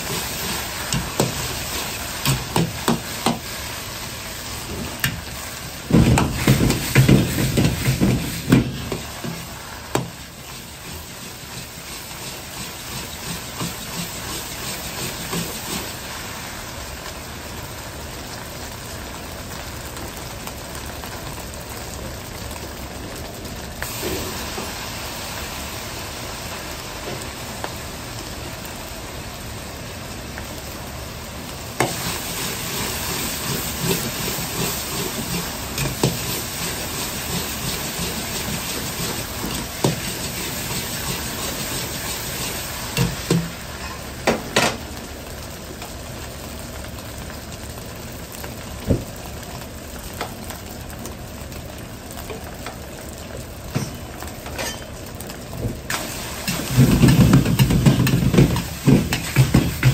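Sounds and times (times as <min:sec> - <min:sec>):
rice sizzling in a wok: 0:00.0 - 0:59.9
ladle clanking against wok: 0:56.4 - 0:59.9.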